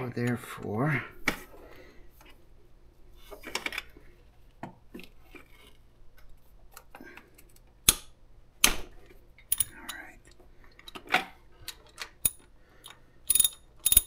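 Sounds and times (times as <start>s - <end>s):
hands clicking and tapping parts: 6.2s - 14.0s.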